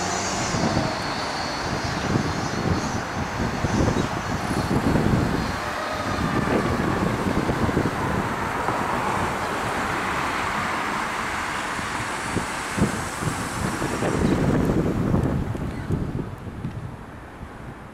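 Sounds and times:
fire engine pulling away: 0:00.0 - 0:16.1
wind buffeting microphone: 0:00.0 - 0:17.9
faint siren wailing: 0:03.8 - 0:08.6.

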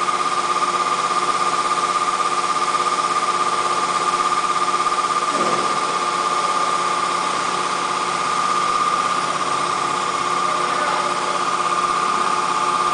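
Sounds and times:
router machine humming and whining: 0:00.0 - 0:12.9.

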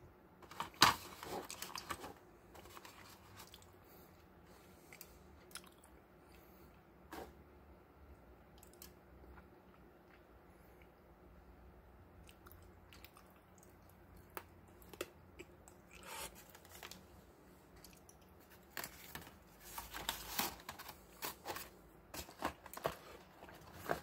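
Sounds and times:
crinkly rustles: 0:00.4 - 0:03.7, 0:16.0 - 0:17.2, 0:17.8 - 0:24.0.

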